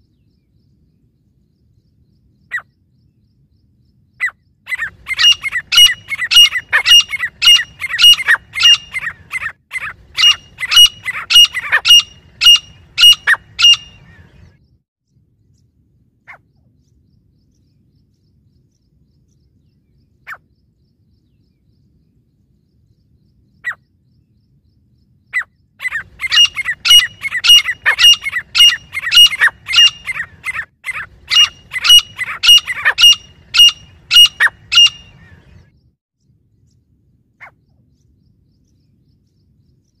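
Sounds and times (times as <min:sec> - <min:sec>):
birds calling ringing notes: 0:04.2 - 0:14.5, 0:25.1 - 0:35.7.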